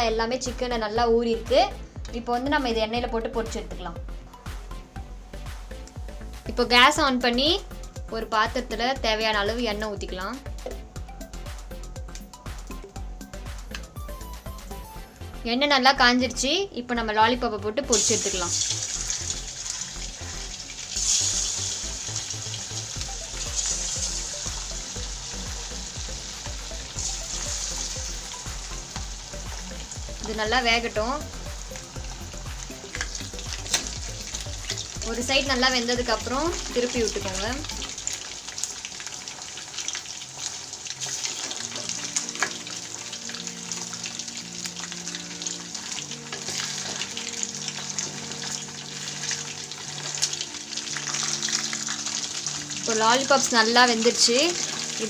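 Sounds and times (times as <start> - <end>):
food sizzling in hot oil: 17.9 - 55.0.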